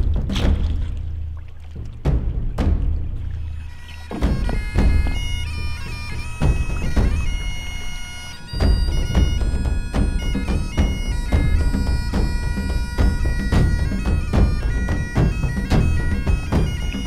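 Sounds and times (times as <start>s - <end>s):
drum beat: 0.0s - 17.0s
bagpipes playing: 3.4s - 17.0s.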